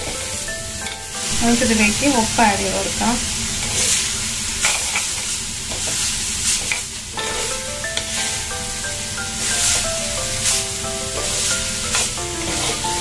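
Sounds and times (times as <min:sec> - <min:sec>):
background music with melody: 0:00.0 - 0:02.9, 0:07.2 - 0:13.0
vegetables sizzling in oil: 0:00.0 - 0:13.0
spoon stirring and scraping: 0:04.6 - 0:06.0, 0:11.2 - 0:13.0.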